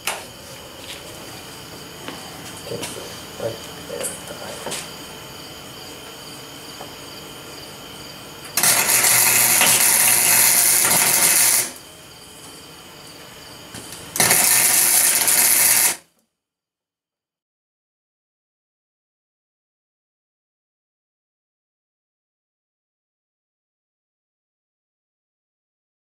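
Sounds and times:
welder arc crackling on sheet metal: 8.5 - 11.8, 13.8 - 16.1.

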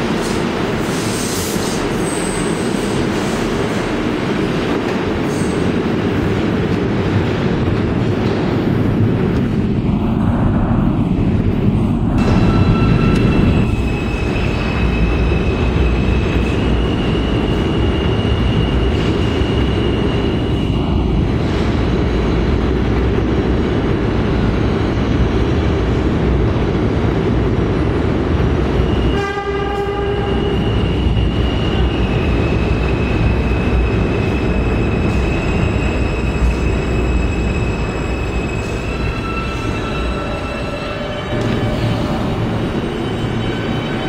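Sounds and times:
subway train rumble: 0.0 - 44.0
train horn blast: 29.1 - 30.6.

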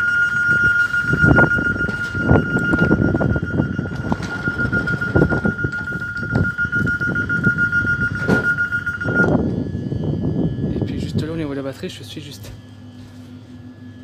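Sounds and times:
high pulsing electronic tone: 0.0 - 14.0
low rumbling noise: 0.0 - 14.0.

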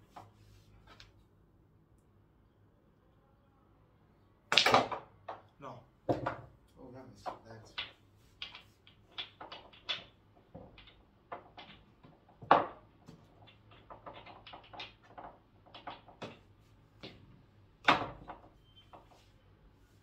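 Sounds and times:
billiard balls clicking: 4.5 - 19.3.

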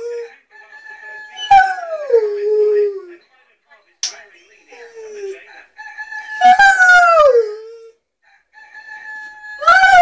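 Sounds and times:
dog howling: 6.2 - 7.9, 9.1 - 10.0.

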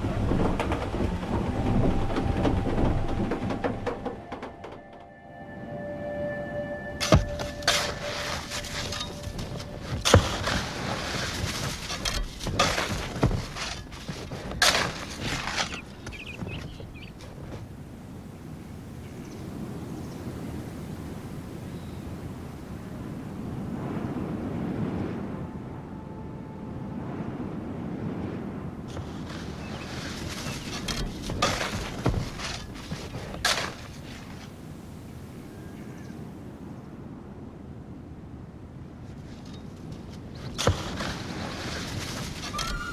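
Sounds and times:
low outdoor wind ambience: 0.0 - 42.9
pickaxes striking stony ground: 7.0 - 17.0, 30.2 - 34.3, 40.4 - 42.9
rustling scraping background: 7.0 - 17.7, 28.9 - 34.6, 39.1 - 42.9.

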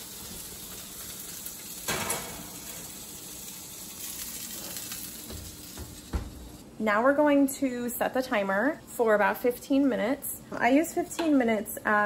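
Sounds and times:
chicken sizzling in pan: 0.0 - 6.6
metal pan clank: 1.9 - 2.5.

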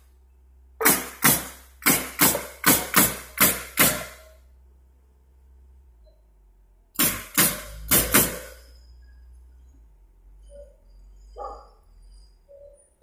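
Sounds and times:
nail gun firing: 0.8 - 4.3, 7.0 - 8.6.

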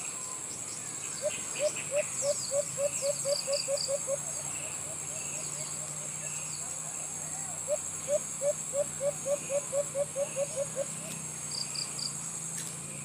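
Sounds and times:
high insect drone: 0.0 - 13.0
dove hooting: 1.2 - 11.4.

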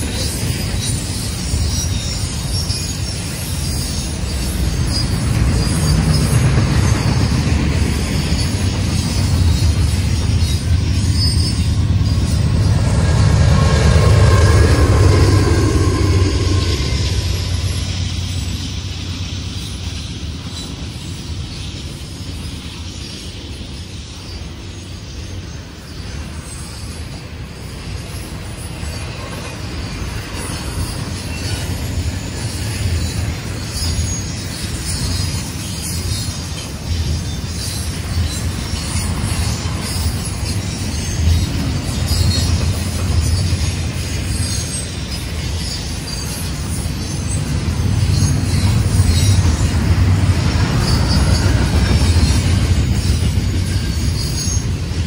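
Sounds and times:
train wheels rumbling on track: 0.0 - 55.0
high-pitched wheel squeals: 0.1 - 20.0, 26.0 - 55.0.

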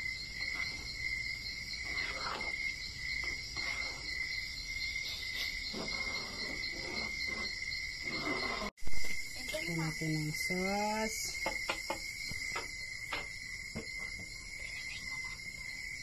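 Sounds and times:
crickets chirping: 0.0 - 16.0
metal spoon stirring sauce in pan: 1.6 - 4.2.

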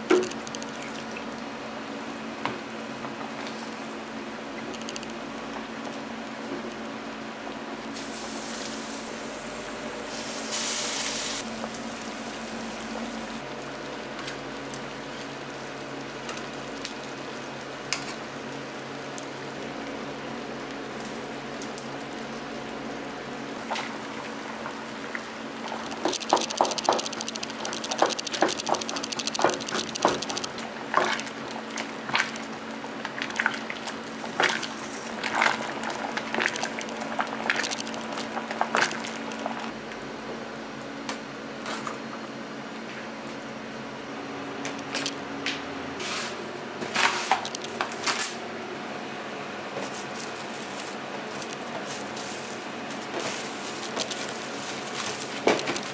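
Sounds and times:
broth boiling and bubbling: 0.0 - 10.2, 11.1 - 40.6, 51.0 - 55.9
steady low hum: 25.4 - 32.9.

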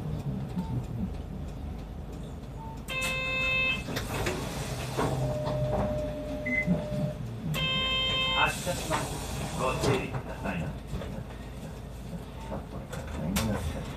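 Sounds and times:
bus running noise: 0.0 - 13.9
short horn-like beep: 2.9 - 3.8, 6.4 - 8.5.

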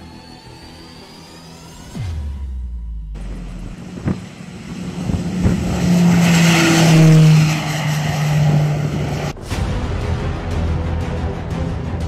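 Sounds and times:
turboprop drone passing by: 3.2 - 9.4.

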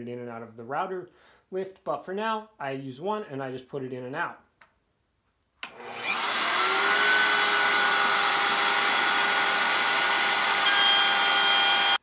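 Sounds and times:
router motor whine: 5.7 - 12.0.

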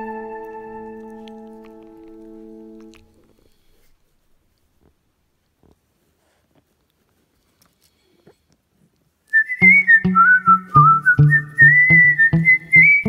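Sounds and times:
whistled melody over bass beat: 0.0 - 1.1, 9.4 - 13.0.

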